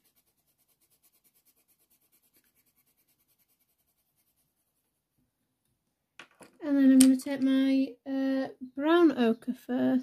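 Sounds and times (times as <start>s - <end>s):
pencil shading on paper: 0.0s - 5.0s.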